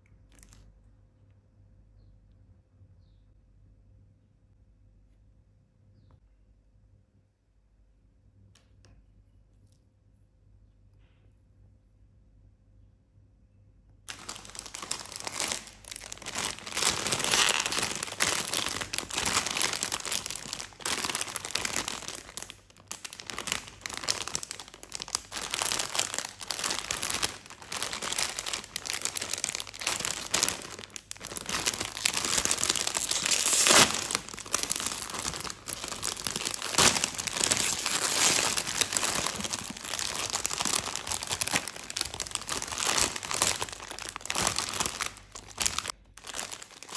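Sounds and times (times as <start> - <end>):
plastic packaging crinkling: 14.1 - 46.9.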